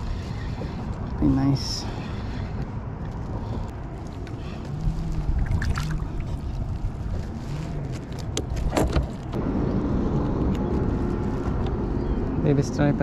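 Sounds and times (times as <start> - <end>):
wind rumbling on microphone: 0.0 - 13.0
water noise: 4.0 - 7.3.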